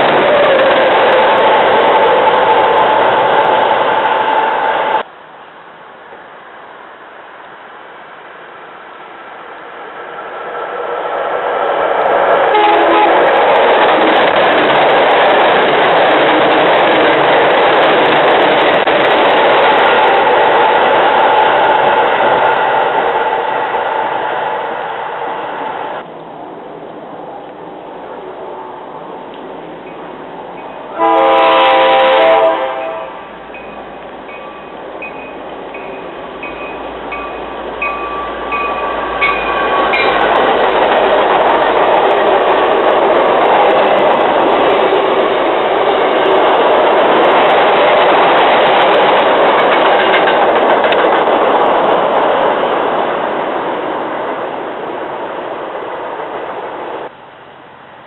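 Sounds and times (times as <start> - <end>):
train rumble and wheel clatter: 0.0 - 58.0
train horn blast: 12.5 - 13.4, 30.9 - 33.4
bell ringing: 33.6 - 40.2.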